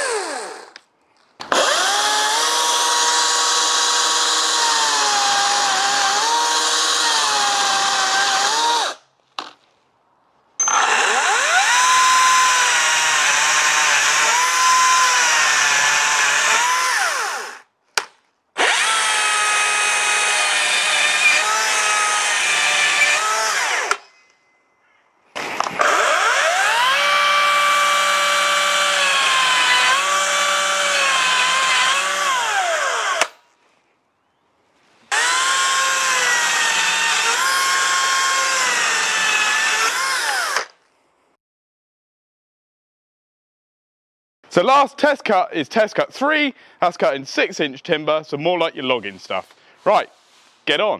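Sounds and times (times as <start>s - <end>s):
electric chainsaw cutting wood: 0.0s - 0.8s, 1.5s - 9.0s, 10.6s - 17.7s, 18.6s - 24.0s, 25.7s - 33.4s, 35.1s - 40.8s.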